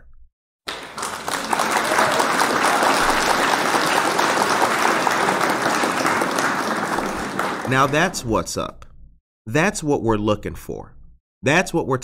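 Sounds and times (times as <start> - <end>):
crowd applauding: 0.7 - 8.4.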